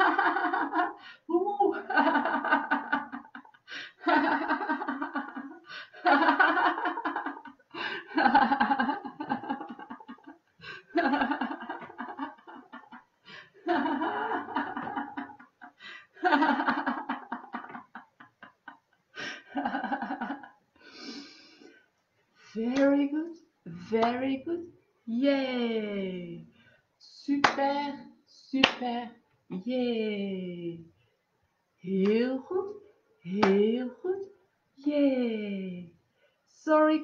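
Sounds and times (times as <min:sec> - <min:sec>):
woman laughing: 0:00.0 - 0:15.6.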